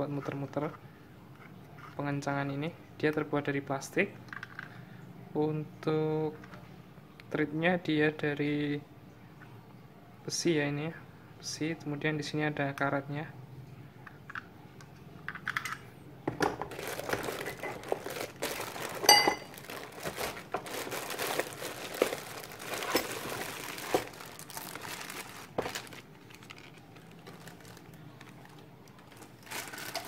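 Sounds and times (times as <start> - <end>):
plastic bags crinkling: 16.6 - 30.0
metal clink: 19.1 - 19.5.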